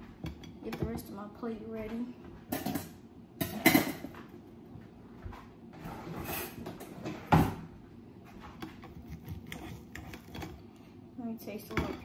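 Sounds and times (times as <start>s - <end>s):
kitchen drawer opening and shutting: 5.8s - 7.7s.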